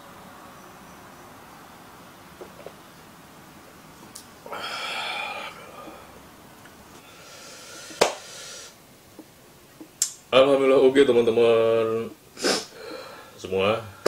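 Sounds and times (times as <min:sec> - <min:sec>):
man exhaling heavily: 0:04.5 - 0:06.1
hand clap: 0:07.9 - 0:08.2.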